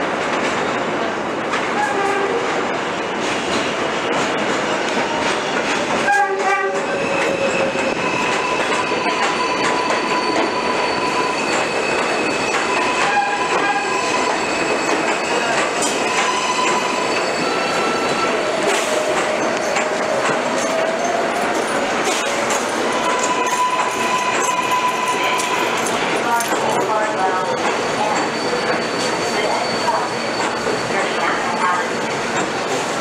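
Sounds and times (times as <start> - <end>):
train wheels clattering on rails: 0.0 - 33.0
train horn blast: 1.8 - 2.5, 6.0 - 6.9, 13.0 - 14.0
high wheel squeal: 6.8 - 32.2.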